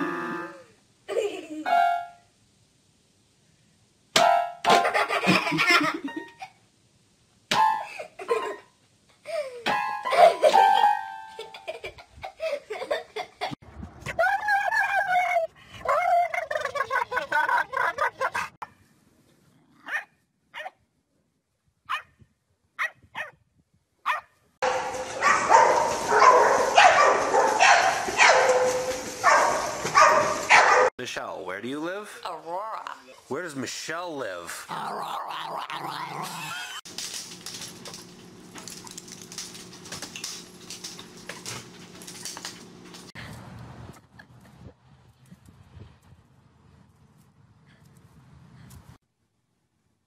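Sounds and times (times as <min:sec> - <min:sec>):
dog barking: 0:19.8 - 0:20.8, 0:21.9 - 0:22.1, 0:22.8 - 0:23.4, 0:24.0 - 0:30.9.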